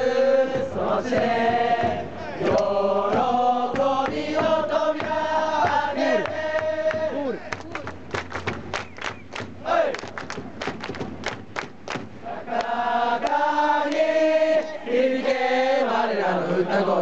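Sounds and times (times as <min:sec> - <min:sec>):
crowd singing in unison: 0:00.0 - 0:07.5, 0:09.6 - 0:10.2, 0:12.0 - 0:17.0
crowd clapping in rhythm: 0:00.4 - 0:16.0.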